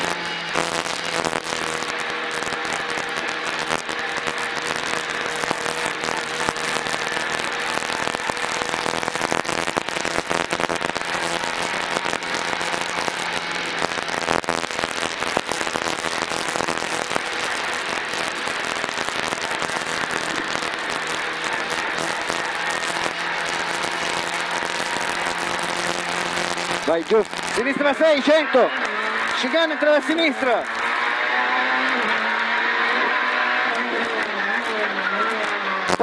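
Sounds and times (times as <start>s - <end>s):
crackling and rattling: 0.0s - 36.0s
car engine from inside cabin: 30.7s - 35.9s.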